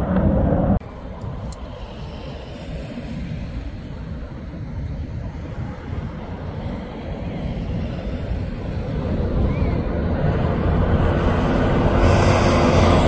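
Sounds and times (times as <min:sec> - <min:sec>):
distant aircraft rumble: 0:00.0 - 0:13.0
loud rumble: 0:08.6 - 0:13.0.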